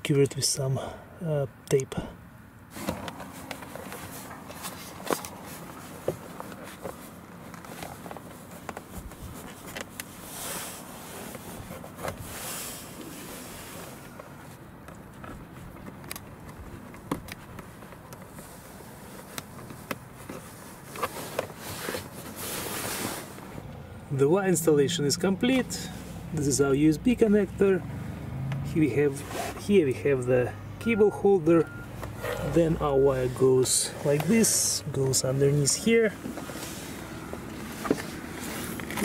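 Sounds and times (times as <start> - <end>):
rustling: 2.7 - 23.6, 32.0 - 39.0.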